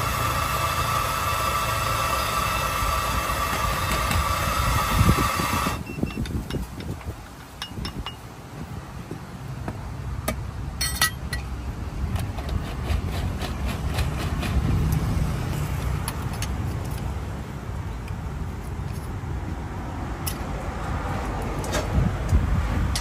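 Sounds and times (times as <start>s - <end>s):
metal tools clinking: 10.8s - 11.5s.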